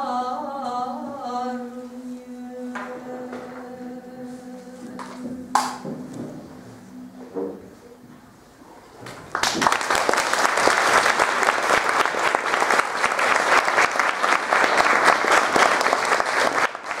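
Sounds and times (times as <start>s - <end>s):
audience applause: 9.2s - 17.0s.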